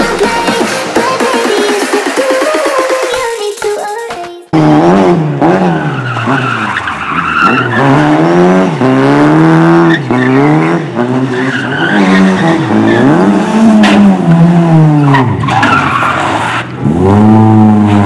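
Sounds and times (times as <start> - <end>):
rally car engine revving: 4.5 - 18.0
tyres skidding on dirt: 5.4 - 18.0.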